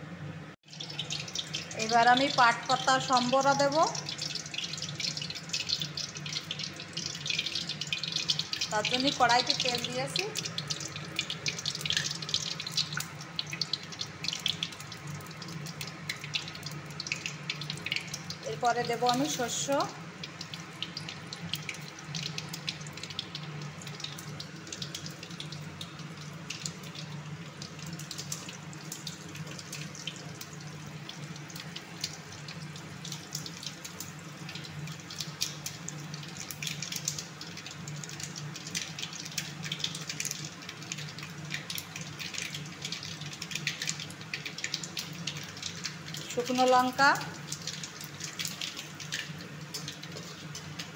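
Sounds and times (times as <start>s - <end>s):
seeds sizzling in hot oil: 0.6s - 50.9s.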